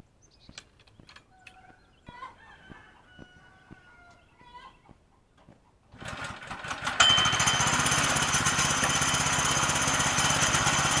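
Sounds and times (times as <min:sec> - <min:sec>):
small gas engine running: 0:05.9 - 0:11.0.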